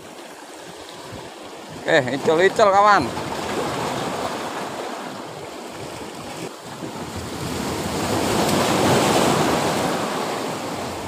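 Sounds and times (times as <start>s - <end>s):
sea waves washing against rocks: 0.0s - 11.0s.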